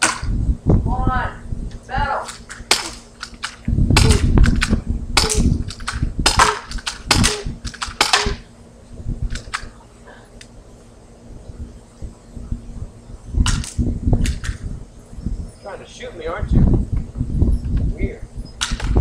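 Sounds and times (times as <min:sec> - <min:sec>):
airsoft guns firing: 0:02.7 - 0:08.4.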